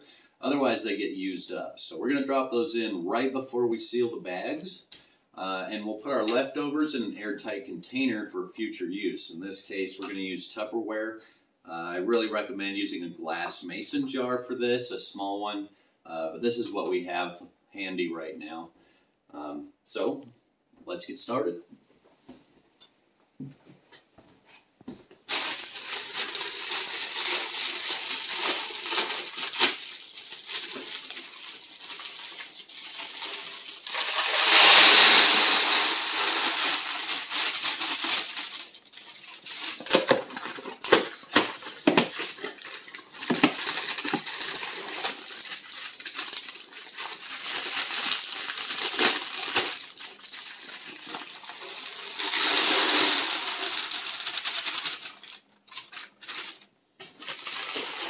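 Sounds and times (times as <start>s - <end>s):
plastic bags rustling and crinkling: 24.5s - 58.0s
oats pouring into a bag: 25.3s - 38.8s, 41.2s - 55.2s, 57.4s - 58.0s.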